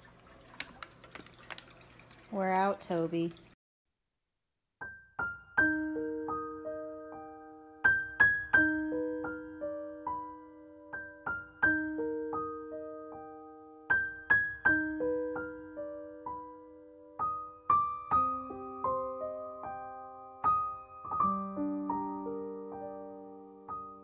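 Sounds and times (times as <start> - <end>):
slow gentle piano music: 4.8 - 24.0.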